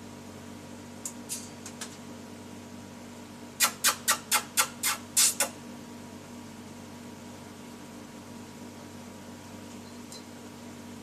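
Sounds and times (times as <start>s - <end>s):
steady low hum: 0.0s - 11.0s
parrot short chirps: 3.6s - 5.5s.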